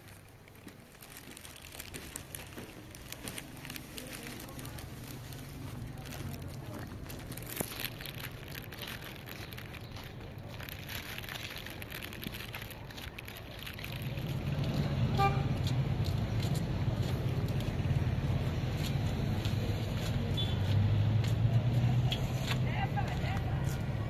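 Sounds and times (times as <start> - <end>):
car engines and tyres rumbling: 0.0 - 24.0
short car horn toot: 15.2 - 15.5.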